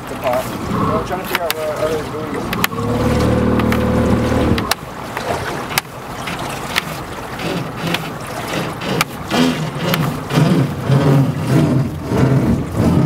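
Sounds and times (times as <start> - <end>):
water noise: 0.0 - 13.0
wind: 0.0 - 13.0
rope being hauled: 6.3 - 11.8.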